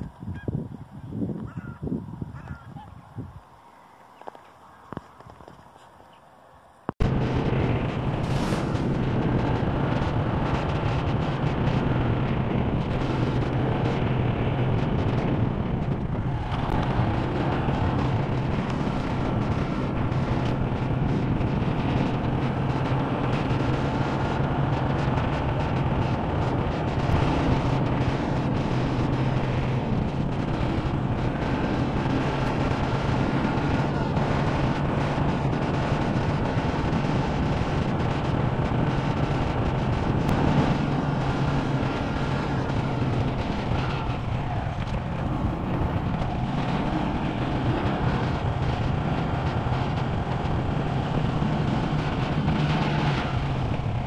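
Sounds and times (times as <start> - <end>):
wind noise on microphone: 0.0 - 6.0, 6.8 - 54.0
motorcycle engine running: 7.0 - 54.0.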